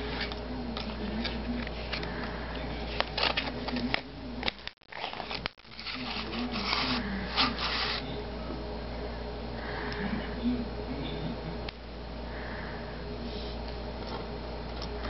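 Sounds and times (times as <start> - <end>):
steady low hum: 0.0 - 15.0
plastic packaging crackling: 3.0 - 8.0.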